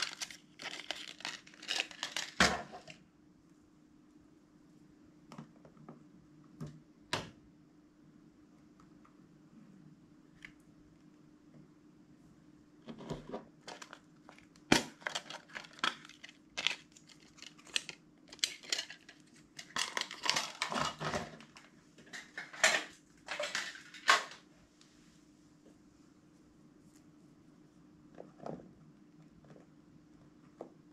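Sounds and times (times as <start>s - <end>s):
hard plastic clicks and crinkles: 0.0s - 3.0s, 12.8s - 24.4s
faint steady hum: 0.0s - 30.9s.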